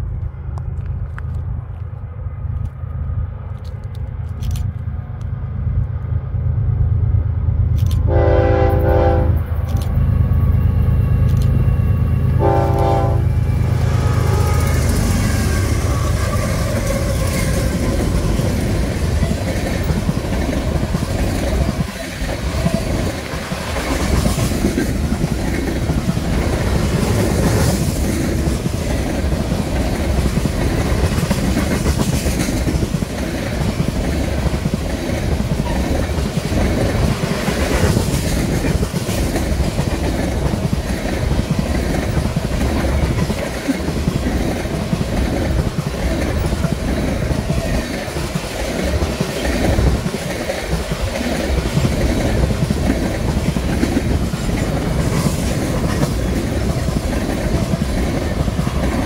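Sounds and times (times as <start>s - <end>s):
diesel locomotive engines rumbling: 0.0s - 59.0s
train horn blasts: 8.1s - 9.5s, 11.7s - 16.6s
train wheels clattering on rails: 13.6s - 59.0s.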